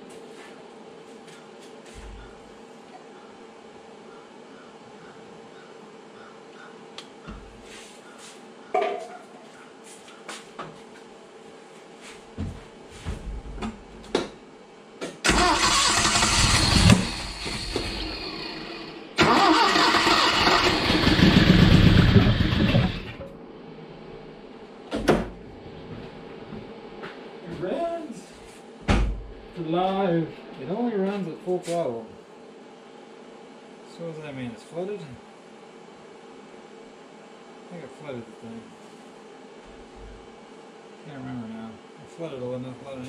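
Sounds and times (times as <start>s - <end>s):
car engine cranking and catching: 15.3s - 18.3s.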